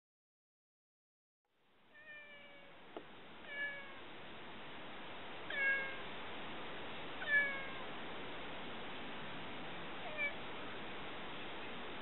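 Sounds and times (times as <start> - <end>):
cat meowing: 1.9 - 2.8, 3.4 - 4.0, 5.5 - 6.0, 7.2 - 7.9, 10.0 - 10.4.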